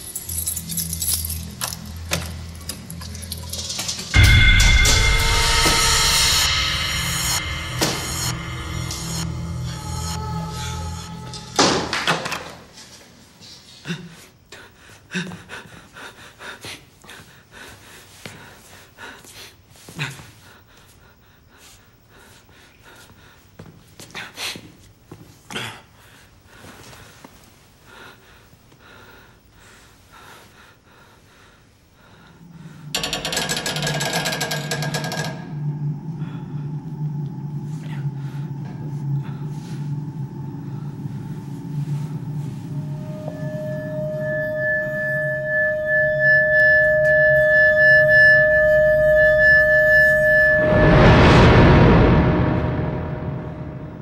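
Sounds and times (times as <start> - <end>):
horror film music drone: 0.0 - 12.6, 32.0 - 54.0
breathing: 25.9 - 27.3, 27.9 - 33.0, 37.8 - 40.0.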